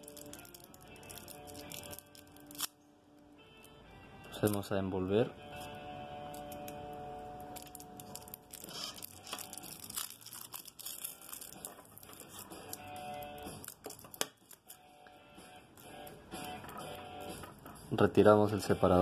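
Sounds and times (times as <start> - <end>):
foil crinkling: 0.0 - 2.7, 7.5 - 14.9.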